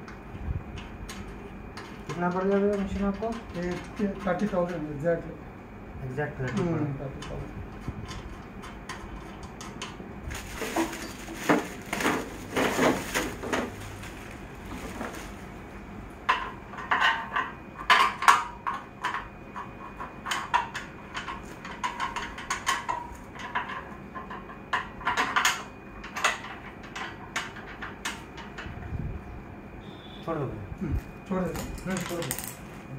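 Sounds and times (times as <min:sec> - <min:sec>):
plastic wrapping rustling: 0:10.3 - 0:15.6.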